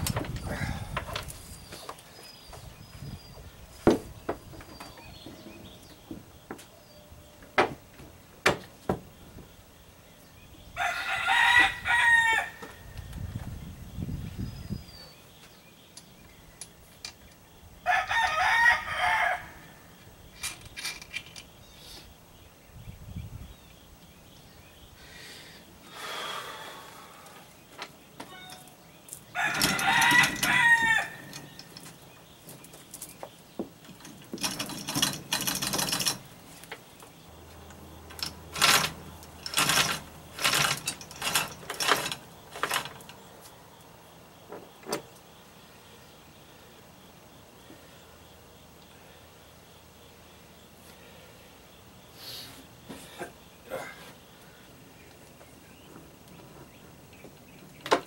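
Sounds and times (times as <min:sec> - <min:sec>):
rooster crowing: 0:10.8 - 0:12.7, 0:17.8 - 0:19.8, 0:29.4 - 0:31.5
sharp metallic clicks and knocks: 0:31.2 - 0:37.1, 0:37.7 - 0:43.3.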